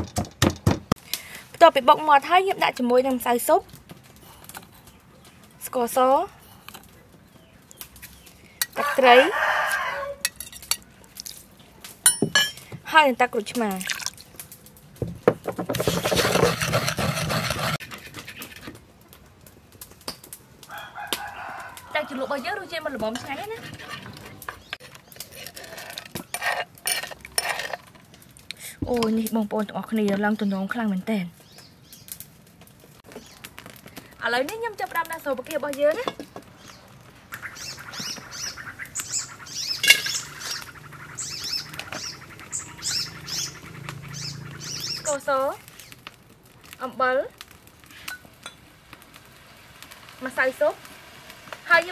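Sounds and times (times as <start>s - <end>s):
small birds chirping: 4.3s - 8.6s, 22.6s - 25.6s, 30.2s - 32.2s, 33.0s - 33.6s, 36.2s - 46.1s
metal spoon scraping sauce: 15.8s - 18.7s, 23.2s - 27.9s.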